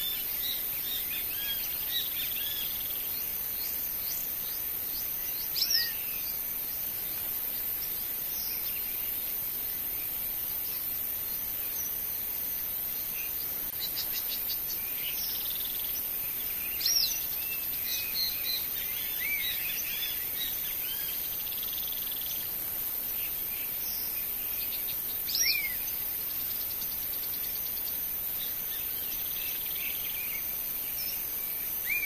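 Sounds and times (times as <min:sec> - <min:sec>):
bird chirps and calls: 0:00.0 - 0:06.4, 0:23.2 - 0:32.0
insect trills: 0:00.0 - 0:32.0
steady high hiss: 0:00.0 - 0:32.0.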